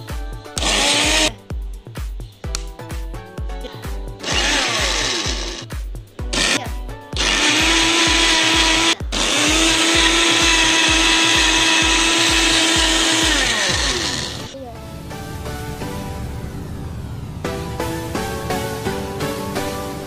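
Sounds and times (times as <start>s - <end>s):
background music with steady beat: 0.0s - 20.0s
blender motor whining: 0.6s - 1.3s, 4.2s - 5.7s, 6.3s - 6.6s, 7.2s - 14.6s.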